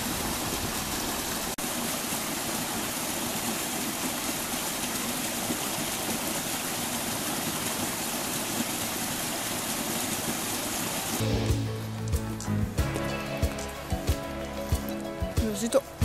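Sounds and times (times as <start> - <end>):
stream pouring into a pool: 0.0 - 16.0
music: 11.2 - 16.0.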